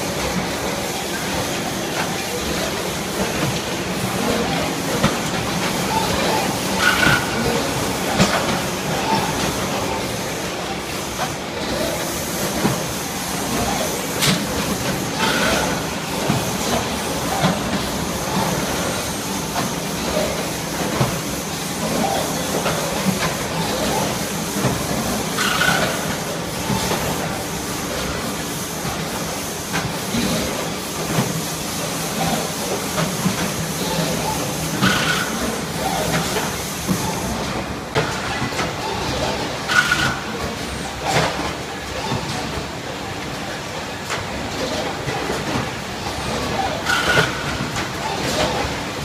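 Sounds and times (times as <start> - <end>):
clatter of conveyors and machinery: 0.0 - 49.0.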